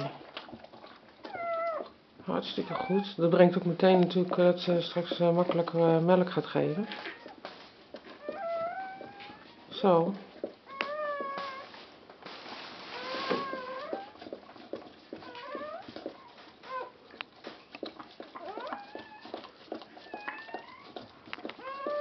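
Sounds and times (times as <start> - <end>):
dog licking: 0.0 - 11.7, 13.0 - 22.0
puppy squealing: 2.6 - 3.1, 8.2 - 9.4, 10.7 - 11.7, 15.2 - 15.9, 16.7 - 17.0, 18.4 - 19.4, 21.6 - 22.0.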